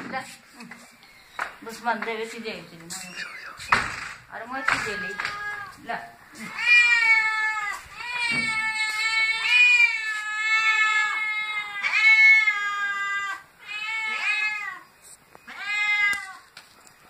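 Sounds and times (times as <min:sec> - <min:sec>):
cat meowing loudly: 0:04.5 - 0:05.8, 0:06.4 - 0:14.8, 0:15.5 - 0:16.5.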